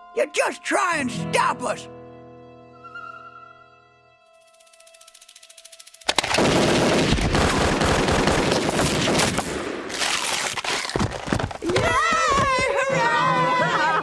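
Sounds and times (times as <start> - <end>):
rapid pistol gunshots: 6.1 - 10.1.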